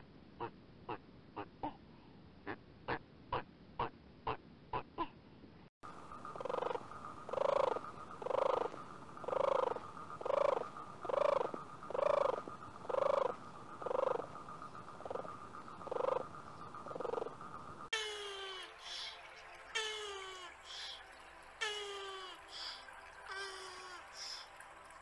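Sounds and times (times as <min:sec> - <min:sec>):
rasping rattling animal calls: 0:06.2 - 0:14.4, 0:15.0 - 0:17.4.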